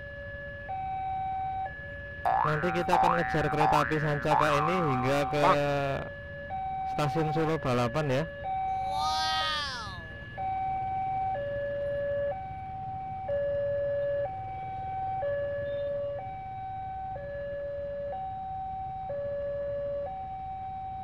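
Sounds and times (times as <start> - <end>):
level crossing alarm tones: 2.3 - 6.1, 6.9 - 10.5.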